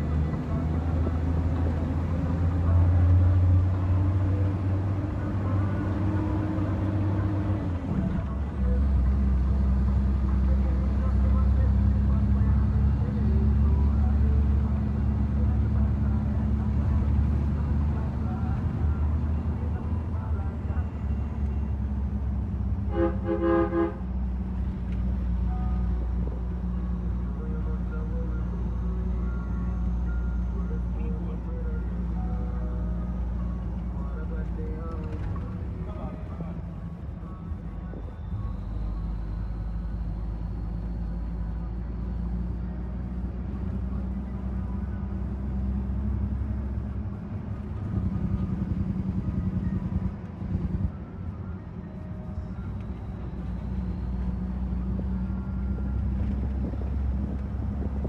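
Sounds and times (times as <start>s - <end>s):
truck diesel engine droning: 0.0s - 58.0s
vehicle horn tooting: 22.9s - 24.0s.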